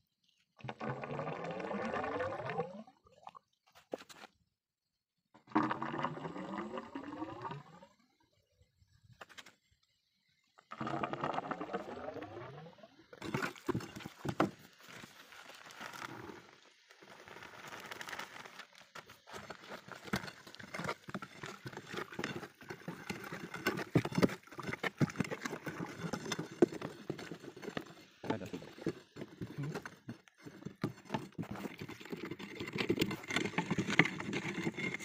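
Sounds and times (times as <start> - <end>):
powder pouring into water: 0.6 - 3.0, 5.4 - 7.8, 10.7 - 13.2
knocks and scrapes: 3.7 - 4.4, 13.2 - 35.0
plastic sack rustling: 17.0 - 21.1.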